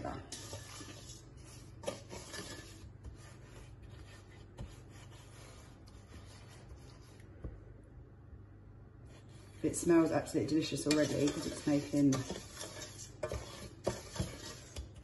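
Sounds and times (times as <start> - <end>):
wooden spoon scraping saucepan: 0.0 - 7.3, 9.1 - 15.0.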